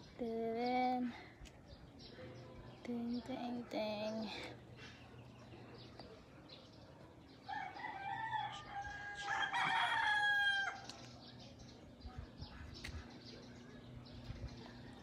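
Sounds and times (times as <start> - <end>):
rooster crowing: 7.5 - 10.8.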